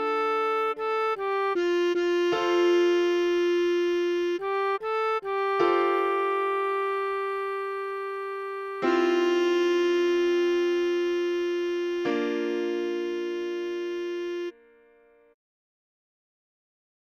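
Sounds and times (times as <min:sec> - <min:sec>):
held synthesizer melody note: 0:00.0 - 0:14.7
sustained keyboard chords: 0:00.0 - 0:15.4.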